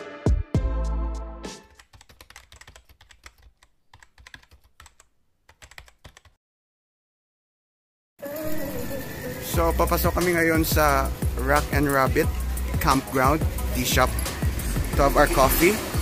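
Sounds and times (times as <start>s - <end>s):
keyboard typing clicks: 1.8s - 6.3s.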